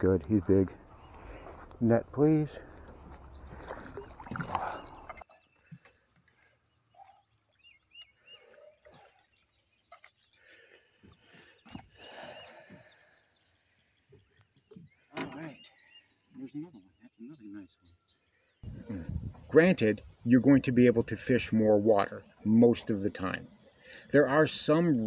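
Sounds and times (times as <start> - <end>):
water sounds: 0.8 - 17.1, 18.6 - 24.8
faint bird chirps: 2.6 - 20.2
fish splashing: 3.0 - 7.2.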